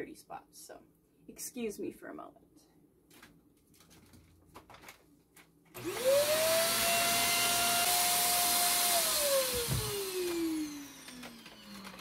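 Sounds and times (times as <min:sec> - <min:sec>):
vacuum cleaner motor whine: 0:05.8 - 0:12.0.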